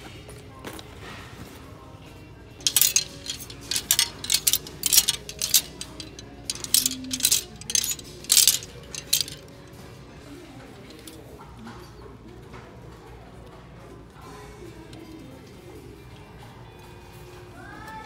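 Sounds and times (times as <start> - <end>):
plastic hangers clicking and scraping: 2.6 - 9.8, 10.8 - 11.2.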